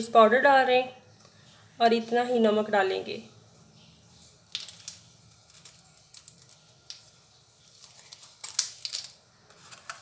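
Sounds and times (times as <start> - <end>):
kitchen utensils clicking and rustling: 7.8 - 10.0.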